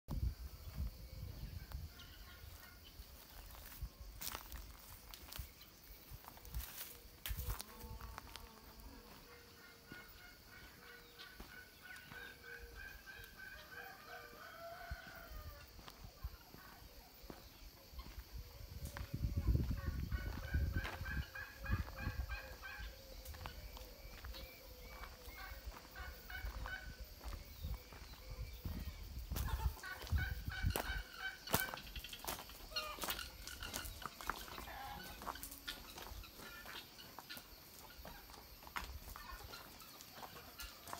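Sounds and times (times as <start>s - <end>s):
chickens calling: 0.6s - 40.9s
rooster crowing: 12.6s - 15.9s.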